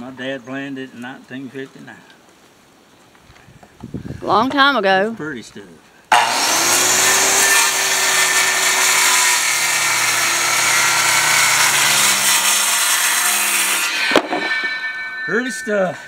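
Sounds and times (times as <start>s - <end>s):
circular saw cutting wood: 6.1s - 16.0s.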